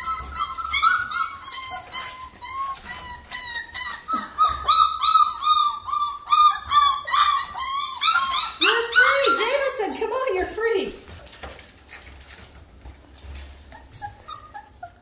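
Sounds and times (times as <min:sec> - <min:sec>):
puppies whining and yelping: 0:00.0 - 0:09.9, 0:13.2 - 0:15.0.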